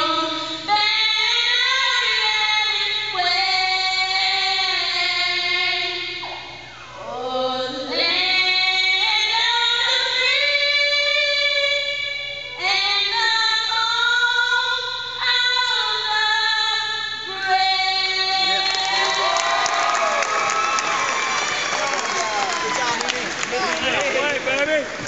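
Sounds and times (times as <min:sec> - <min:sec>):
woman singing a cappella: 0:00.0 - 0:19.3.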